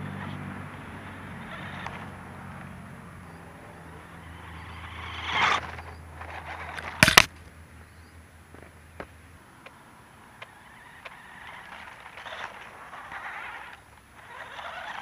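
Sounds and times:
toy truck motor hum: 0:00.0 - 0:07.3, 0:10.2 - 0:15.0
camera jolted knock: 0:06.8 - 0:07.3.

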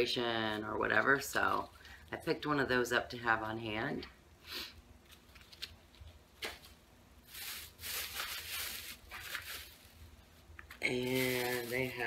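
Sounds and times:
rustling and handling noises: 0:05.0 - 0:12.0.

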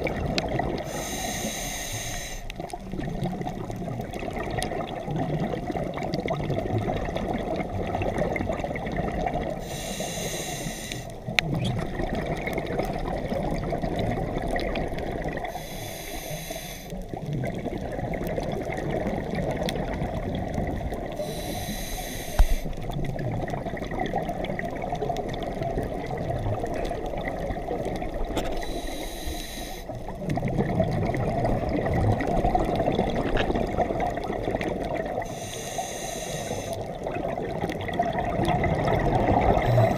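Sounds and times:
exhaled bubbles rushing: 0:00.0 - 0:01.0, 0:02.6 - 0:09.6, 0:11.2 - 0:15.5, 0:17.0 - 0:21.2, 0:22.4 - 0:28.8, 0:29.9 - 0:35.4, 0:36.7 - 0:39.9
regulator breathing hiss: 0:00.8 - 0:02.6, 0:09.6 - 0:11.2, 0:15.5 - 0:17.0, 0:21.2 - 0:22.8, 0:28.6 - 0:29.9, 0:35.2 - 0:36.9.

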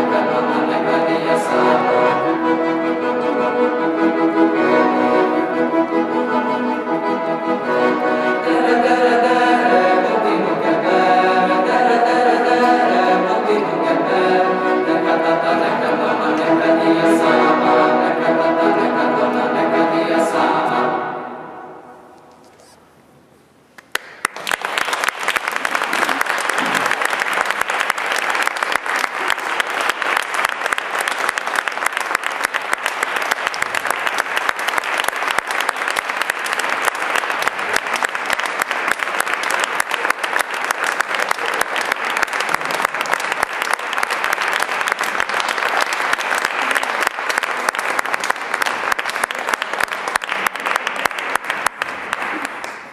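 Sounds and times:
audience applauding: 0:23.8 - 0:52.9.

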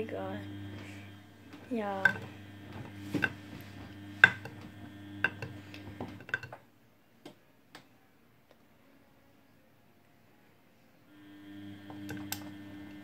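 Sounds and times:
washing machine motor hum: 0:00.0 - 0:06.6, 0:11.1 - 0:13.0.

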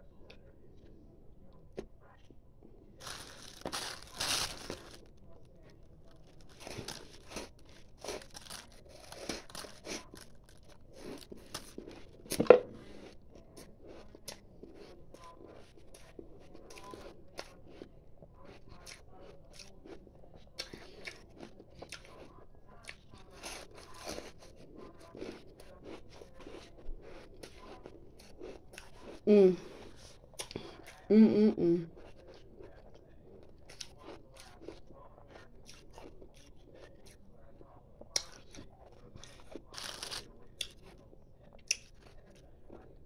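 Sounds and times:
person crunching ice: 0:03.0 - 0:05.0.

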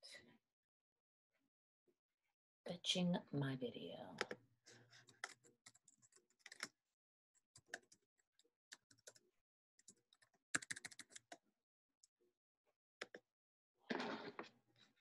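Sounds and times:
faint computer keyboard typing: 0:05.0 - 0:06.7, 0:07.6 - 0:08.0, 0:08.7 - 0:09.2, 0:09.8 - 0:11.4.

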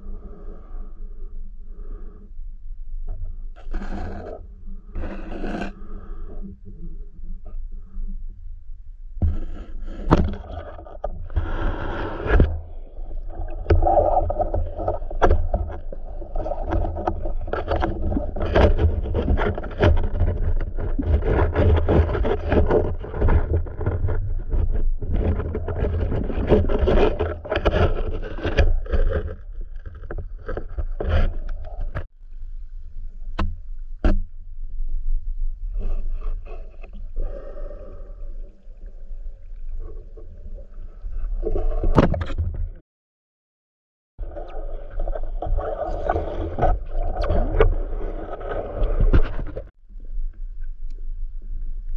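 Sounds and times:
underwater water rumbling: 0:03.0 - 0:42.8, 0:44.2 - 0:51.9
knocks and scrapes from handling: 0:09.2 - 0:32.1, 0:44.9 - 0:49.7.

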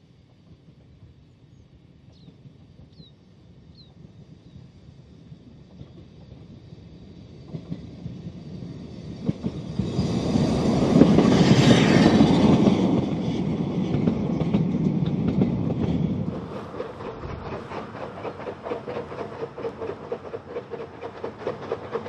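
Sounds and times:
steam locomotive passing: 0:00.0 - 0:22.0
wheels clicking over rail joints: 0:12.4 - 0:22.0.

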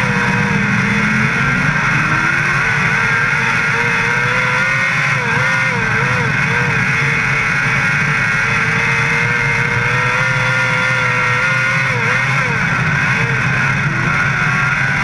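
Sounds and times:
race car engine: 0:00.0 - 0:15.0
wind and track noise: 0:00.0 - 0:15.0.

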